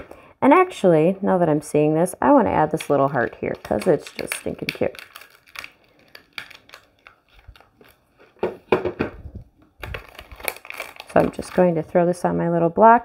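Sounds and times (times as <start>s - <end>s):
plastic crinkling and rustling: 2.7s - 12.0s.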